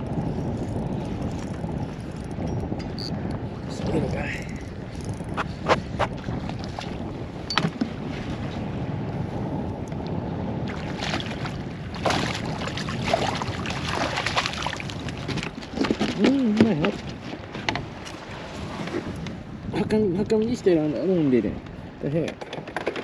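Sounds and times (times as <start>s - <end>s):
water splashing and sloshing: 0.0s - 8.7s, 9.9s - 19.5s
wind on microphone: 0.0s - 23.0s.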